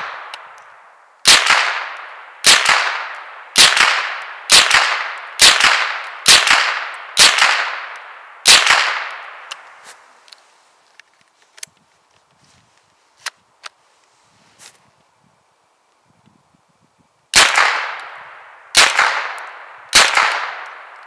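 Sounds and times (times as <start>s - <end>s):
rifle shots with echo: 0.0s - 0.4s, 1.2s - 9.6s, 17.3s - 21.0s.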